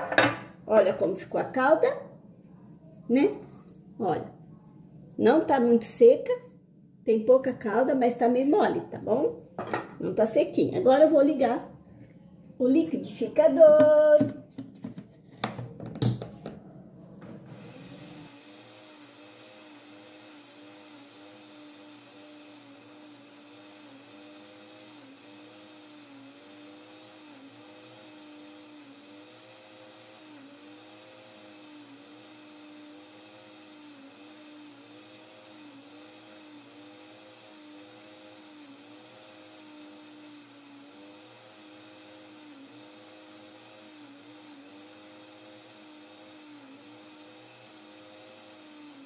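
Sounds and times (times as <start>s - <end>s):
blender motor hum: 17.2s - 49.0s.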